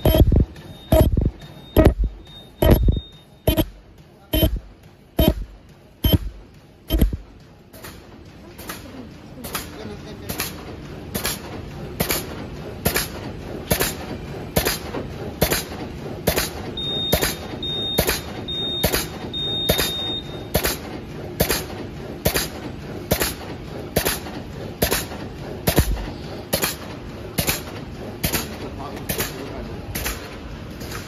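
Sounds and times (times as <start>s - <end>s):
short high beeps: 0.0s - 3.7s, 4.3s - 4.6s, 5.2s - 5.4s, 6.9s - 7.2s, 16.8s - 20.4s
machine clacking over hum: 0.0s - 31.0s.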